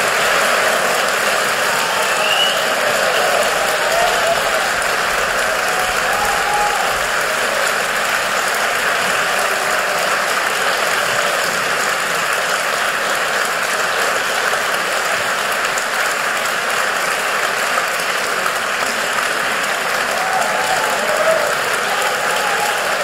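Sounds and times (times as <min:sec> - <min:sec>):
audience applauding: 0:00.0 - 0:23.0.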